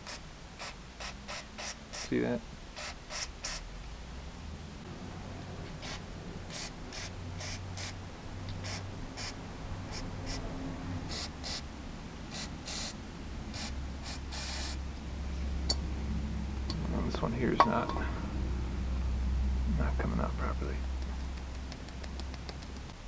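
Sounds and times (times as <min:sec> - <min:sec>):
aerosol spray hissing: 0:00.0 - 0:02.2, 0:02.8 - 0:03.6, 0:05.8 - 0:10.4, 0:11.1 - 0:11.7, 0:12.3 - 0:14.8.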